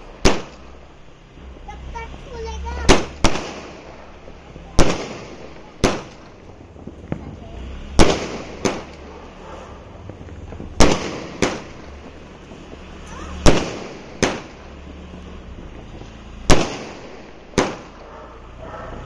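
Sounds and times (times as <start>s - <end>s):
firework shells bursting with bangs: 0.0s - 18.5s.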